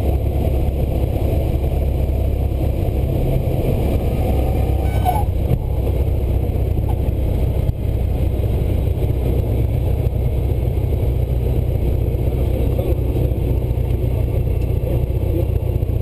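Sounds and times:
propeller plane engine drone: 0:00.0 - 0:16.0.

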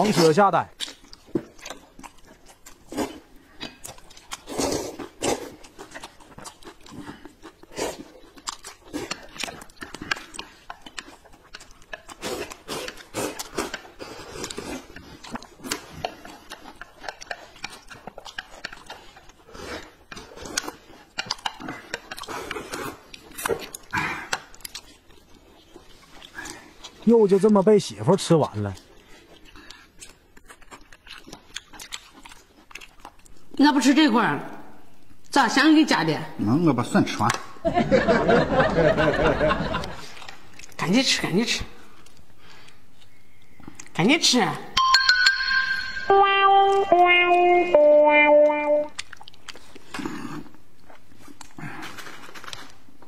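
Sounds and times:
chewing and lip-smacking: 0:00.0 - 0:27.6, 0:28.2 - 0:33.6, 0:39.5 - 0:41.0, 0:41.8 - 0:44.0, 0:48.9 - 0:53.0
loud noodle slurping: 0:04.4 - 0:06.0, 0:12.2 - 0:15.0.

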